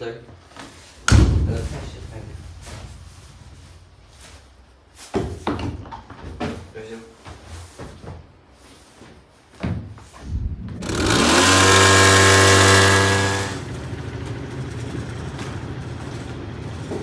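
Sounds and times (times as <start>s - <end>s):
small motorbike engine revving: 10.8s - 16.3s.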